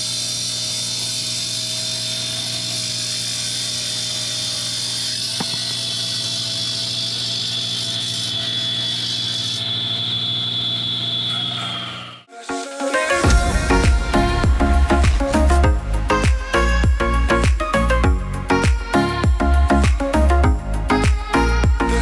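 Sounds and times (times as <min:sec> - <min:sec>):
hydraulic saw grinding concrete: 0:00.0 - 0:12.3
high even whine: 0:01.3 - 0:18.7.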